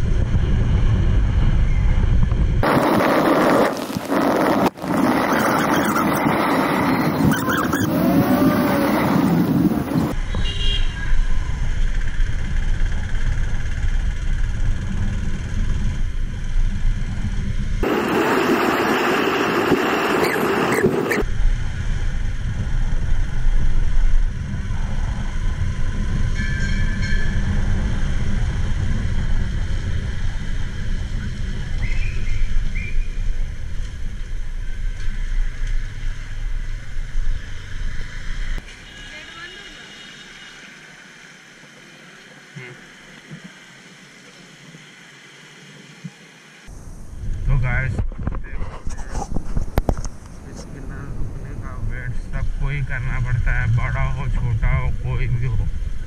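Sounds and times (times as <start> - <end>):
wind on microphone: 0.0 - 10.4, 11.1 - 38.6, 46.7 - 52.6
road rumble: 0.0 - 56.0
vehicle horn beeps: 10.3 - 11.1, 38.6 - 40.8.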